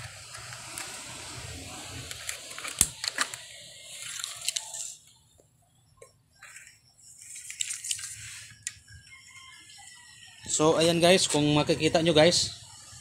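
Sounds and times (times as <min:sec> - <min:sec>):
tape measure rustling and clicks: 0:02.0 - 0:05.1, 0:06.4 - 0:08.8.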